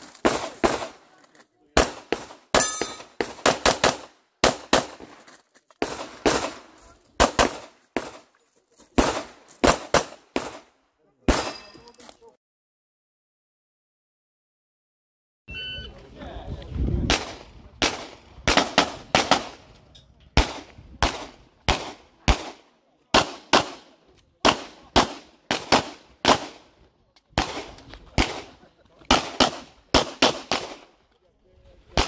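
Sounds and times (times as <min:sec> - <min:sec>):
pistol shots with echo: 0:01.8 - 0:05.0, 0:07.2 - 0:08.2, 0:09.0 - 0:10.7, 0:11.3 - 0:11.8, 0:17.1 - 0:19.6, 0:20.4 - 0:26.7, 0:27.4 - 0:30.9
electronic beep: 0:15.5 - 0:16.0.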